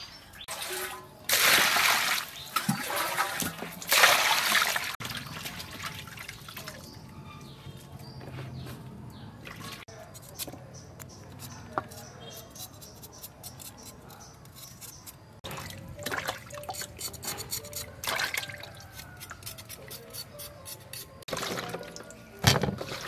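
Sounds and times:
water dripping and splashing: 0.5s - 7.0s, 15.4s - 16.8s.

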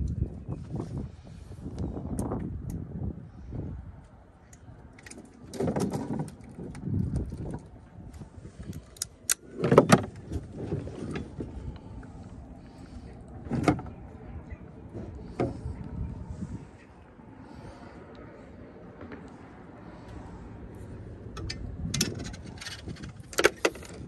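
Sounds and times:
cooler lid opening: 9.6s - 11.3s.

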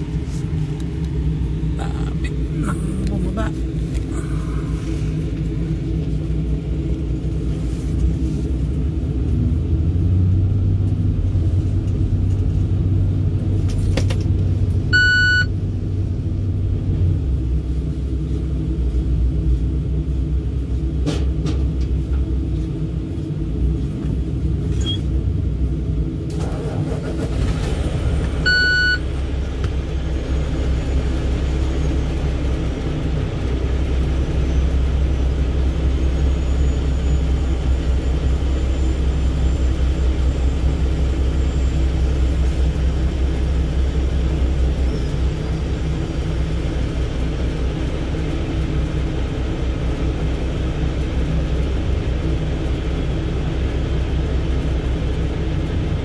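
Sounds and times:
low diesel engine rumble: 0.0s - 56.0s
short electronic beeps: 14.9s - 15.5s, 24.7s - 25.1s, 28.4s - 29.1s.

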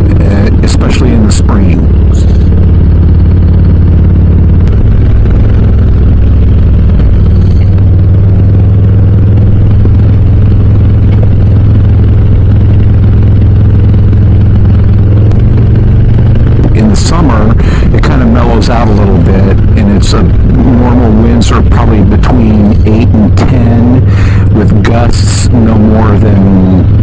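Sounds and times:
motorcycle engine drone: 0.0s - 27.0s.

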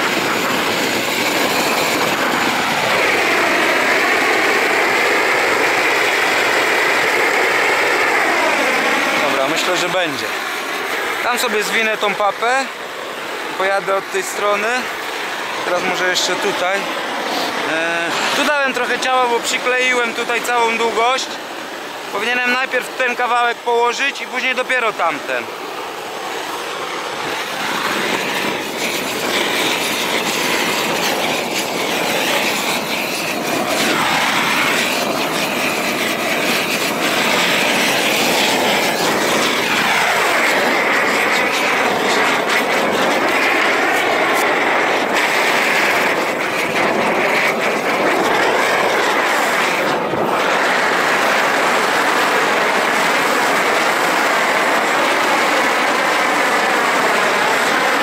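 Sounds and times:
gas torch flame rushing: 0.0s - 58.0s.

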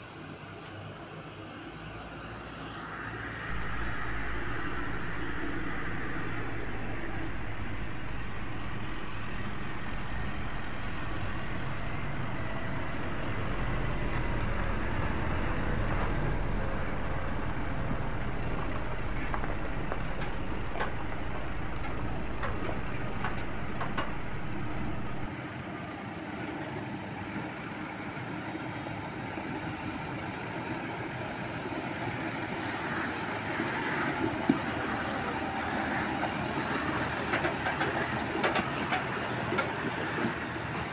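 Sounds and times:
tractor engine running: 3.4s - 40.9s
trailer clattering: 3.5s - 25.3s, 31.8s - 40.9s.

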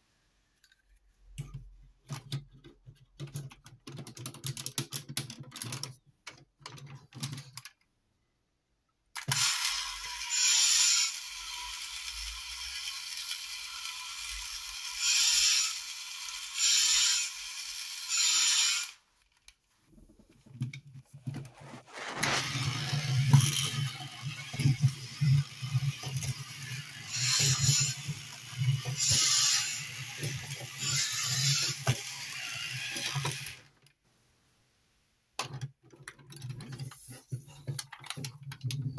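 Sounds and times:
toy motor whirring: 9.2s - 19.1s, 21.9s - 33.7s
ratcheting bursts: 22.4s - 33.6s.

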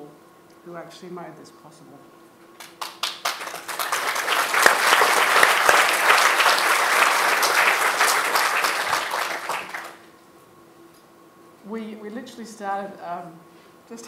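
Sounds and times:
audience applauding: 2.6s - 10.0s.

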